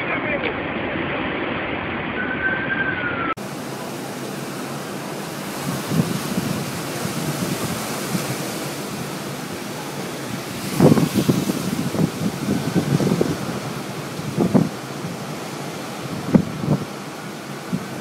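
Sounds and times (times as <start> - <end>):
siren wailing: 2.1 - 3.4
wind buffeting microphone: 2.2 - 18.0.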